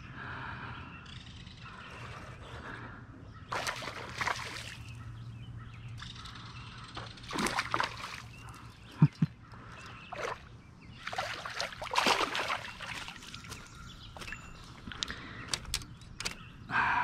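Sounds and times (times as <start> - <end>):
creek water sloshing and splashing: 3.5 - 5.2, 6.9 - 15.0.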